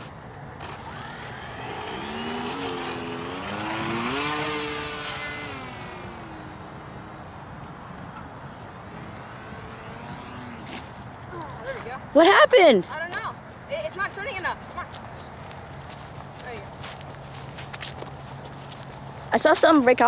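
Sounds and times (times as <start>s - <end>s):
electric motor high whine: 0.6s - 11.0s.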